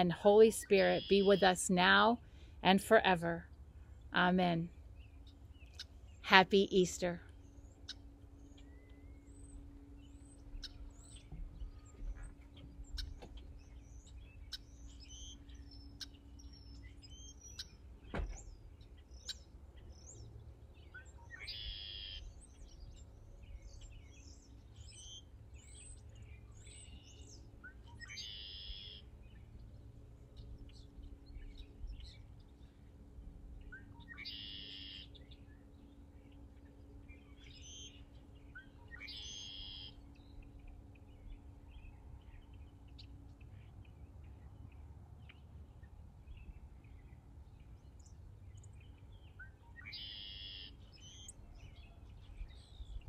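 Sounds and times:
birds chirping and whistling: 0:07.3 - 0:32.7, 0:33.6 - 0:44.4, 0:46.3 - 0:53.0
bird trilling: 0:21.3 - 0:22.3, 0:27.9 - 0:29.0, 0:33.7 - 0:35.2, 0:37.6 - 0:40.0, 0:49.8 - 0:51.4.

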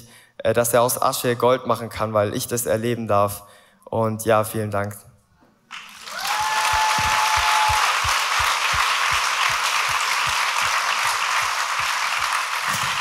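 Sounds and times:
audience applause: 0:05.7 - 0:13.0.

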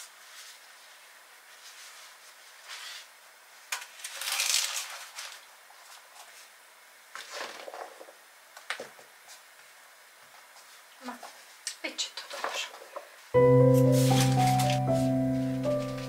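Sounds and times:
pastry sheets crackling and rustling: 0:00.0 - 0:06.6.

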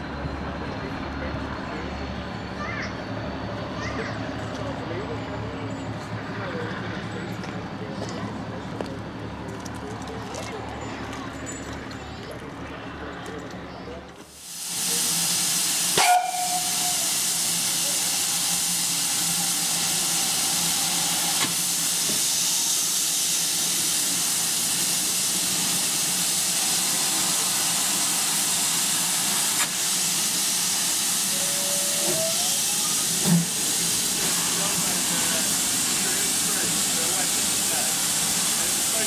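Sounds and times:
steam hissing from locomotive: 0:14.2 - 0:39.0.

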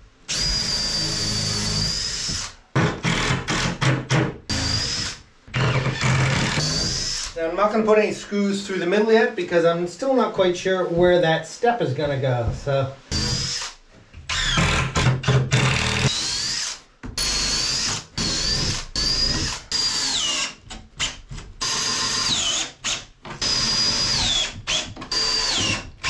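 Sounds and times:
cordless drill driving screws: 0:13.1 - 0:26.0.

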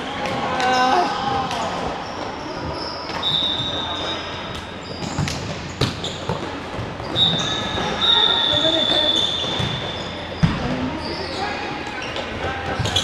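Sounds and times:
high thin shoe squeak: 0:07.0 - 0:12.2.

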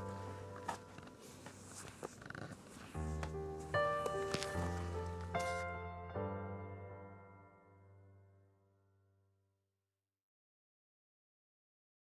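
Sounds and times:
faint background music chord: 0:00.0 - 0:02.1.

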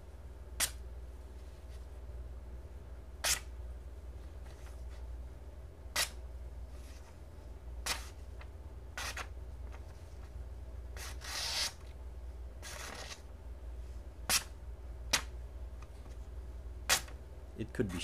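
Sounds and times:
knife slicing paper: 0:03.2 - 0:03.5, 0:09.0 - 0:09.3, 0:11.0 - 0:11.8.

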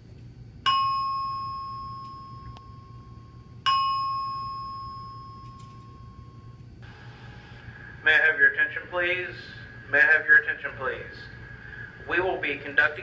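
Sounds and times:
fire alarm chime: 0:00.6 - 0:06.8.

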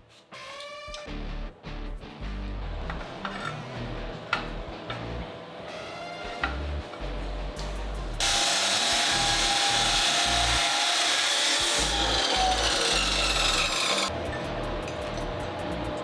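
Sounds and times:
background music: 0:00.1 - 0:08.3, 0:08.9 - 0:16.0
power tool grinding metal: 0:08.2 - 0:14.1.

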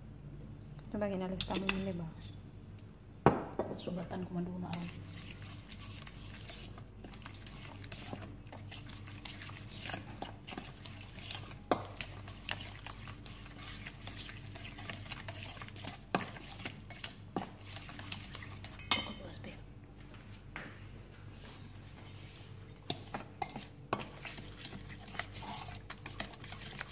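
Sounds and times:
steady low hum: 0:00.0 - 0:26.9
spoon scraping a metal bowl: 0:04.7 - 0:19.2, 0:22.8 - 0:26.9
spoon clinking on bowl: 0:18.8 - 0:19.2.

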